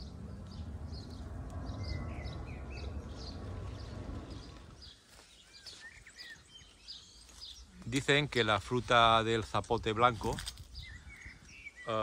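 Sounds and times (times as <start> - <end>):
low rumble on microphone: 0.0 - 5.0
small birds chirping: 0.0 - 12.0.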